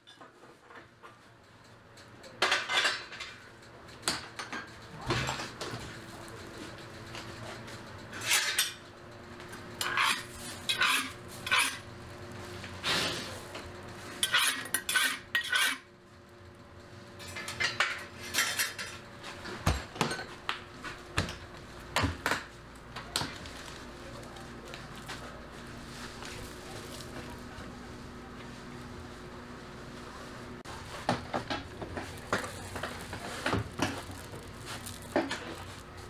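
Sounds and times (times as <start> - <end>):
metal kitchenware clattering: 2.4 - 3.4, 8.1 - 8.8, 9.8 - 11.9, 14.1 - 15.9, 17.2 - 19.0.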